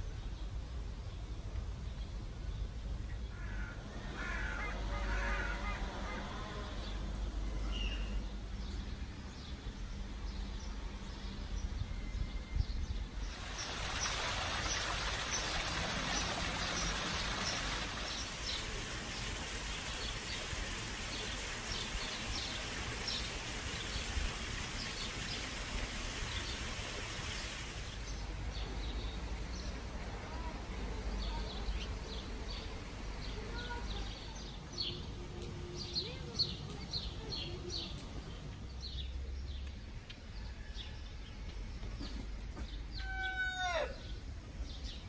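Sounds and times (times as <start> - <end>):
rushing water: 13.2 - 34.2
small birds chirping: 27.2 - 39.8.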